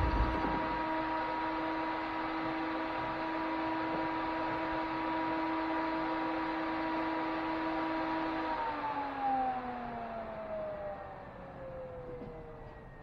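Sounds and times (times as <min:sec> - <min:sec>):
car engine idling: 0:00.0 - 0:00.8
steady whine: 0:00.0 - 0:03.0.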